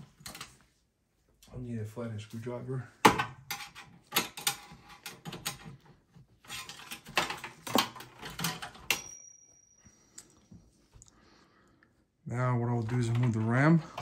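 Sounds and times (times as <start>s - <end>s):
cables and connectors rattling in metal case: 3.5s - 9.0s.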